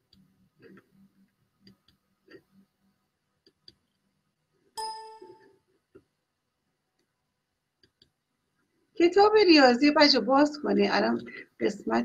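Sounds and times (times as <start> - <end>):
short ding: 4.8 - 5.5.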